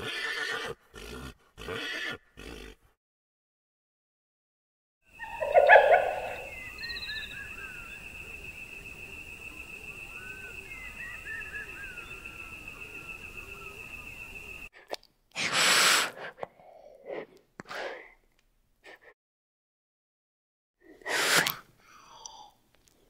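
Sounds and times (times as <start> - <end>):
animal snorting: 0.9 - 2.9
small birds chirping: 5.1 - 14.7.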